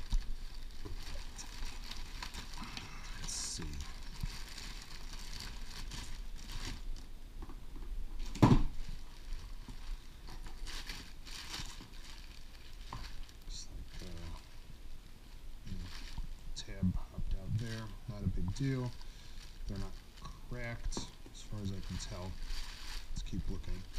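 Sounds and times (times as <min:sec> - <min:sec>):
plastic packaging crinkling: 0:00.0 - 0:23.9.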